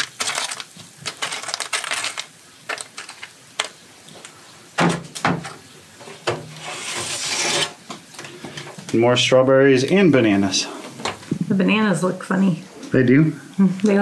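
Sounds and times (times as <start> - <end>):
fruit pieces rattling on metal tray: 0.0 - 3.8
tray scraping out of shelves: 6.0 - 7.9.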